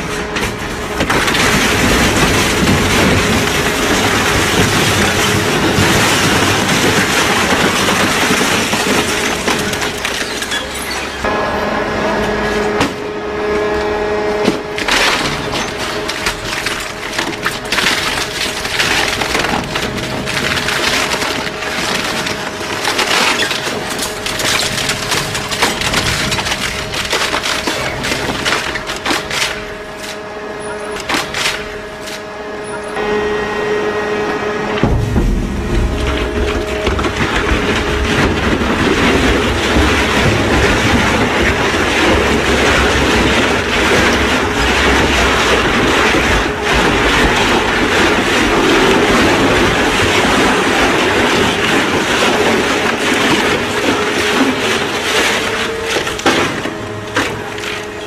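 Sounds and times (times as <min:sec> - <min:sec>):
metal and plastic crunching: 0:00.0 - 0:11.4, 0:12.2 - 0:33.2, 0:34.4 - 0:58.0
shredder machine hum: 0:00.0 - 0:58.0.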